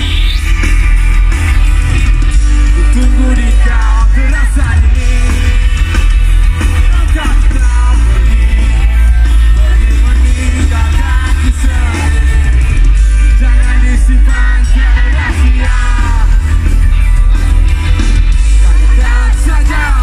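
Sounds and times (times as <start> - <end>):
live rock band playing: 0.0 - 20.0
person singing: 6.6 - 17.7, 18.5 - 20.0.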